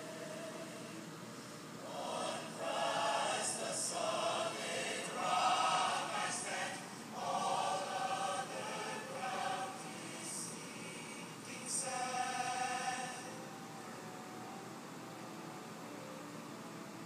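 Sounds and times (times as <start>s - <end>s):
large mixed choir singing: 0.0s - 1.2s, 1.8s - 13.4s.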